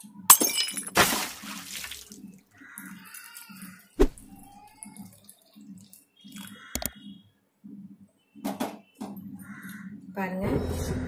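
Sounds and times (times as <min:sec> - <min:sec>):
milk pouring and splashing: 0:01.0 - 0:02.3.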